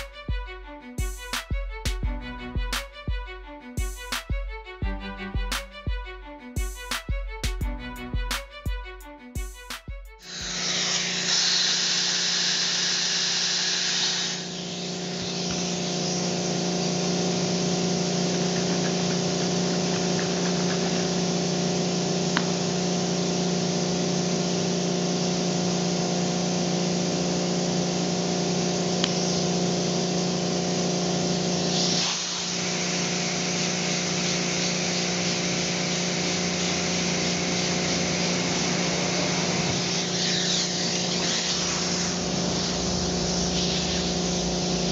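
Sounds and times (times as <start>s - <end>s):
machinery humming: 0.0s - 44.9s
hiss: 10.2s - 17.0s, 29.1s - 29.6s, 31.6s - 44.9s.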